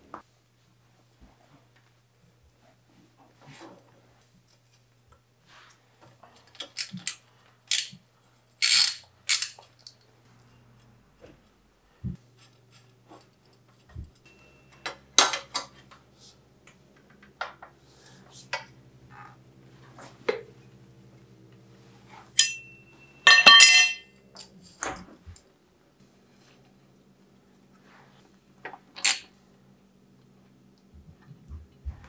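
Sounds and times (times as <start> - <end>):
faint steady hum: 0.0 - 32.0
metal tools clinking: 8.6 - 10.0, 22.4 - 24.6
ringing metal clatter: 22.4 - 24.2.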